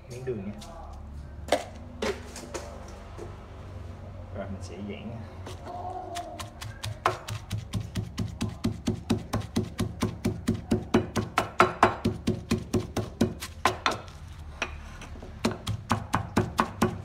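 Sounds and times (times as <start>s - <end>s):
wooden pestle pounding in mortar: 5.5s - 14.2s, 15.4s - 17.0s.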